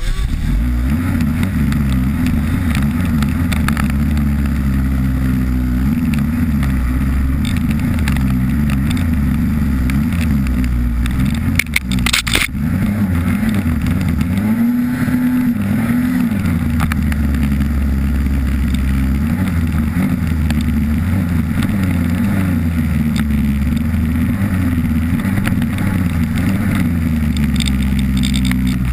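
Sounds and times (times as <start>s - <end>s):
snowmobile engine running: 0.0s - 28.9s
short sharp clatter: 10.1s - 12.6s.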